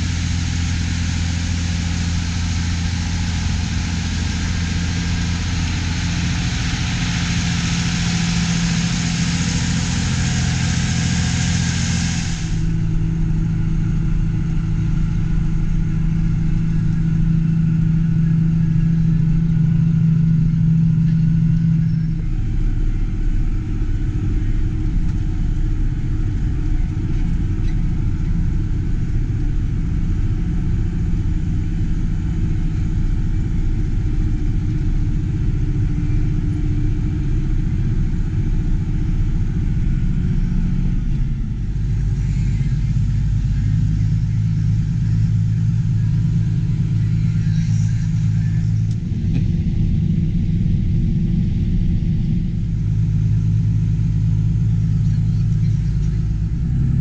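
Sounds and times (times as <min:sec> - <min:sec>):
loud hiss: 0:00.0 - 0:12.8
steady low tone: 0:00.0 - 0:57.0
tractor diesel engine running: 0:00.0 - 0:57.0.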